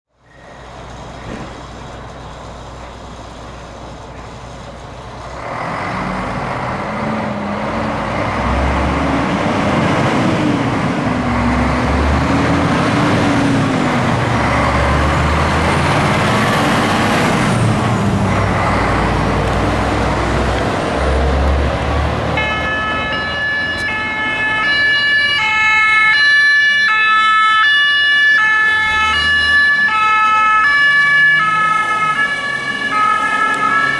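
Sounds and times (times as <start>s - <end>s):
diesel engine running: 0.3s - 26.1s
two-tone siren: 22.3s - 33.9s.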